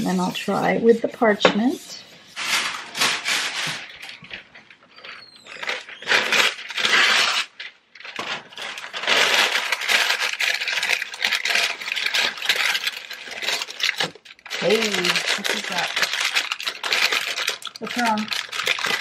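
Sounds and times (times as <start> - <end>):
parchment paper rustling and crinkling: 0.0 - 19.0.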